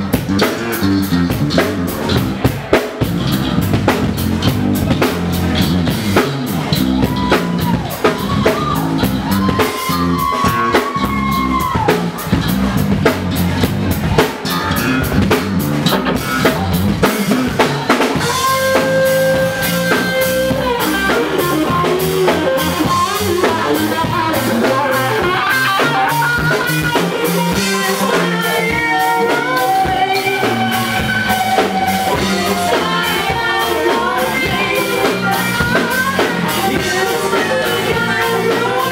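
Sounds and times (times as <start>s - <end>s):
live rock band playing: 0.0s - 38.9s.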